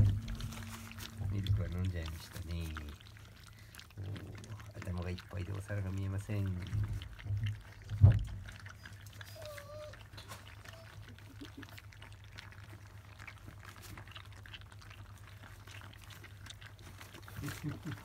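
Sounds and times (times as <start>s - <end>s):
steady low hum: 0.0s - 4.8s
puppies lapping wet food: 0.0s - 18.0s
puppy squeaking: 8.5s - 11.4s.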